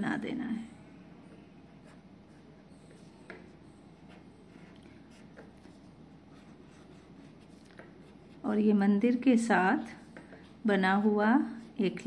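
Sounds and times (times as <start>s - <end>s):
marker pen scratching on paper: 1.2s - 8.6s.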